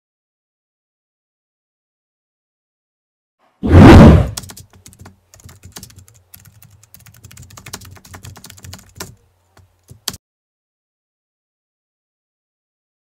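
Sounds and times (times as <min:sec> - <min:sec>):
keyboard typing clicks: 0:04.3 - 0:10.2.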